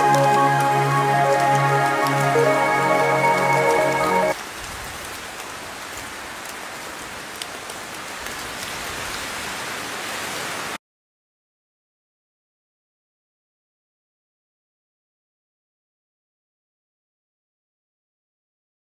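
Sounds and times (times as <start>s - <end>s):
ambient music with held tones: 0.0s - 4.4s
rain falling: 0.0s - 10.8s.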